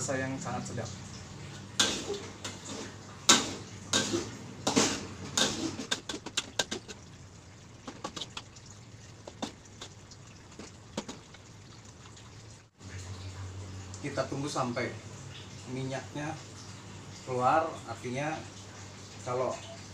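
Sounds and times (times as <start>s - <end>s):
metal spatula scraping a wok: 1.8s - 6.7s.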